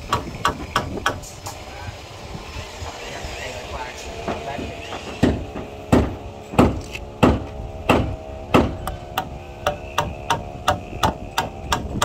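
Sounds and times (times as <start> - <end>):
hammer driving nails into wood: 4.9 - 12.0.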